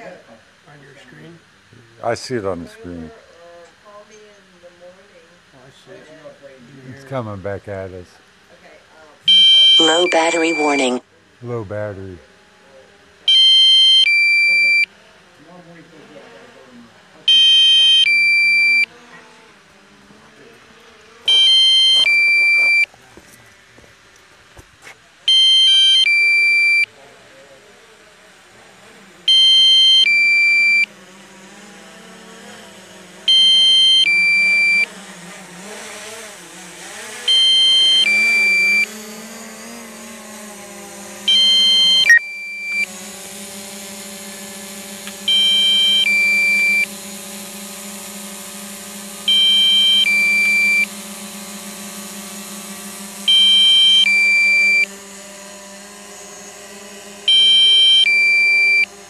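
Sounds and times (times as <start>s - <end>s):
steady low hum: 0.0s - 59.0s
two-tone electronic beep: 9.3s - 11.0s, 13.3s - 14.9s, 17.3s - 18.8s, 21.3s - 22.9s, 25.3s - 26.8s, 29.3s - 30.8s, 33.3s - 34.9s, 37.3s - 38.9s, 41.3s - 42.9s, 45.3s - 46.9s, 49.3s - 50.9s, 53.3s - 54.9s, 57.3s - 58.9s.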